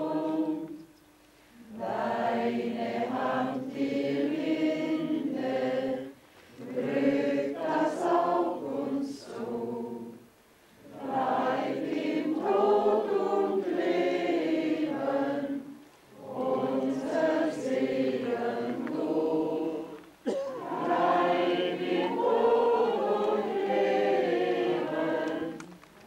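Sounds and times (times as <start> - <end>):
group singing a hymn unaccompanied: 0.0 - 25.8.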